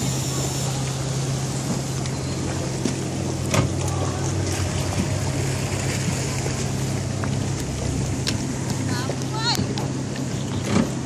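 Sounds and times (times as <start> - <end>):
wind and water spray hiss: 0.0 - 3.8
motorboat engine drone: 0.0 - 11.0.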